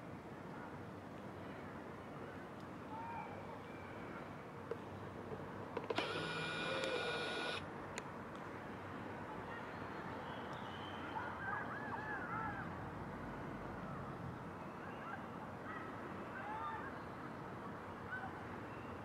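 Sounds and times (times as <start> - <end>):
steady background hum: 5.6 - 7.6
high mechanical whine: 6.0 - 7.6.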